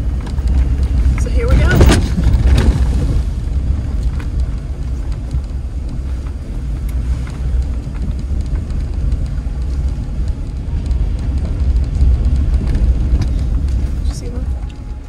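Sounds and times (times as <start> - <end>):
engine and tyres rumbling: 0.0 - 15.0
faint clicks: 3.5 - 15.0.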